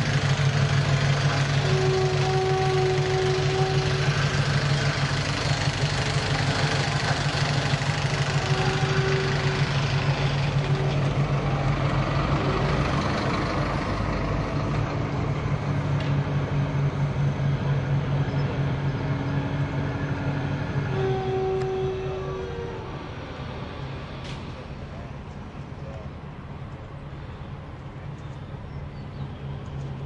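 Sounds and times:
diesel machinery humming: 0.0s - 30.0s.

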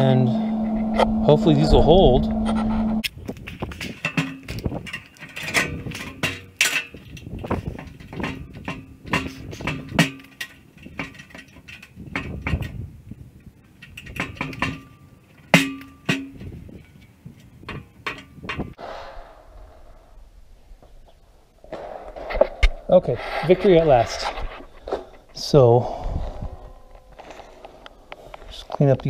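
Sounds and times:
metal clanks on steel tank: 14.0s - 16.6s.

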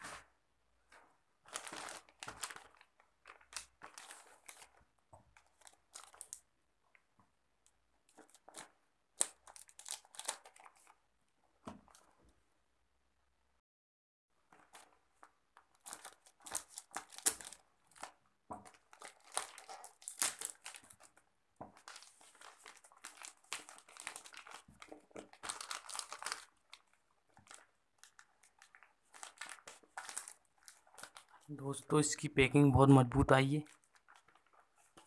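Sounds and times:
plastic wrap crinkling and tearing: 0.9s - 6.5s, 8.1s - 11.0s, 14.4s - 31.5s, 33.6s - 35.0s.

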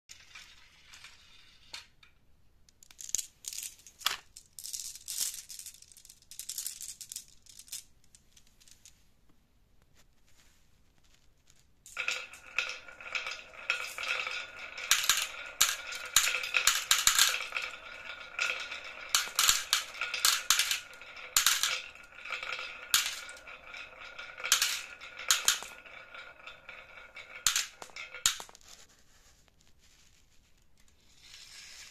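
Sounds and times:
marbles rattling in toy truck: 0.1s - 2.0s, 2.8s - 8.8s, 11.9s - 28.8s
marbles rolling and clicking: 0.1s - 8.9s, 11.0s - 28.9s.

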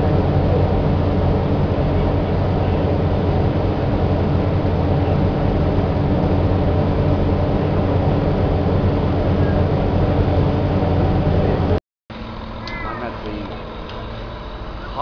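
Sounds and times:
ferry engines droning: 0.0s - 15.0s
wind: 0.0s - 15.0s.

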